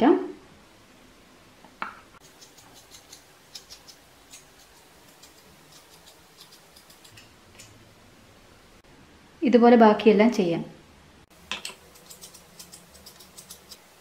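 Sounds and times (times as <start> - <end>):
knife scraping fruit skin: 2.2 - 7.3, 11.8 - 13.9.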